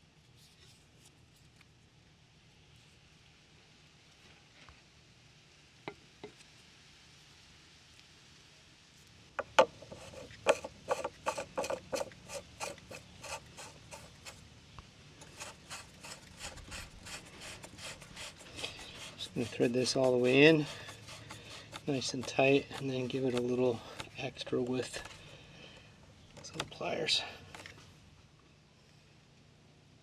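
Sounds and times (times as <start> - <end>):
plastic threads clicking and rasping: 9.5 - 14.4, 15.2 - 25.2.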